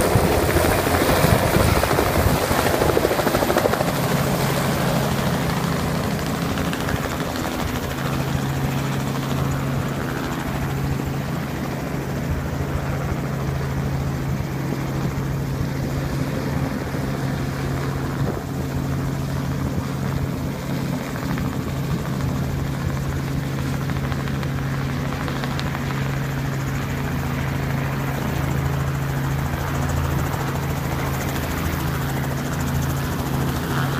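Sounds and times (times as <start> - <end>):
helicopter in flight: 0.0 - 33.9.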